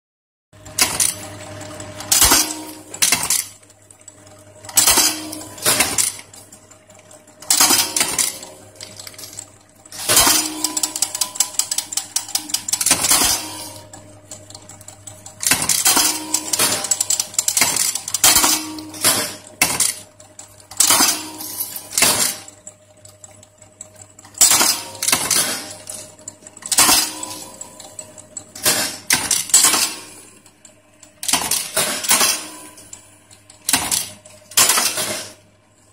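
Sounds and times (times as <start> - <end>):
steady low hum: 0.6 - 35.9
sharp metallic clacks: 7.4 - 13.8, 31.1 - 33.0.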